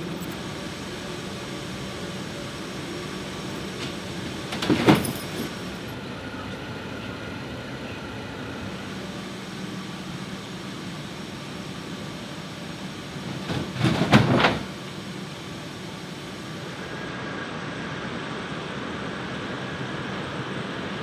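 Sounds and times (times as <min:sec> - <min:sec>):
jet engines running: 0:00.0 - 0:21.0
loud clatter: 0:13.3 - 0:14.7.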